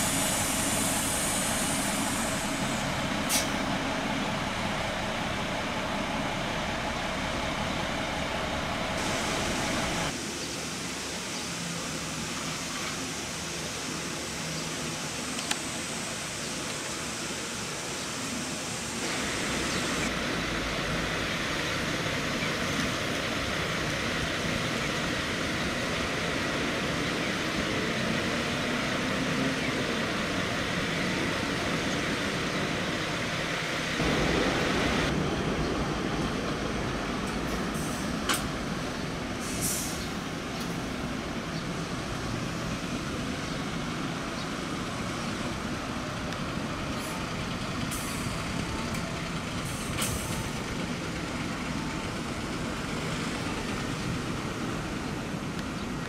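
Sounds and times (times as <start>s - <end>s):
short sharp hisses: 0.0s - 3.6s, 39.4s - 40.1s
diesel coach engines running: 0.0s - 56.0s.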